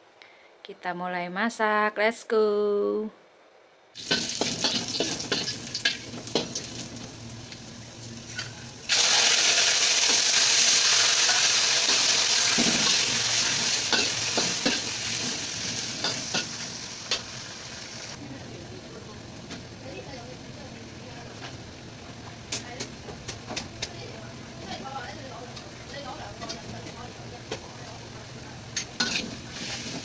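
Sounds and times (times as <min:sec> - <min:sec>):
squid sizzling in wok: 0:04.0 - 0:18.2, 0:28.6 - 0:30.0.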